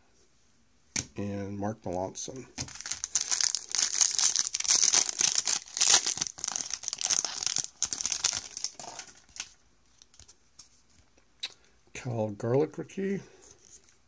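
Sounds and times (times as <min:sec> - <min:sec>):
wrapper tearing and crinkling: 0:02.6 - 0:09.6.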